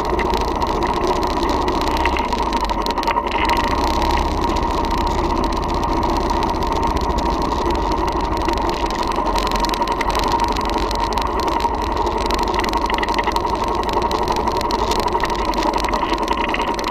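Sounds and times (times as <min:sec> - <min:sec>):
motorcycle engine running: 0:03.4 - 0:15.4.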